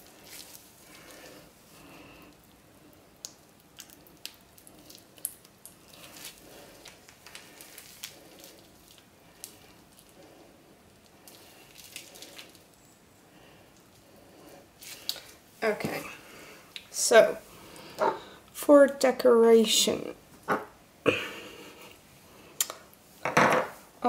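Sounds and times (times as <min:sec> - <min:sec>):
piping bag squishing: 0:00.0 - 0:12.8.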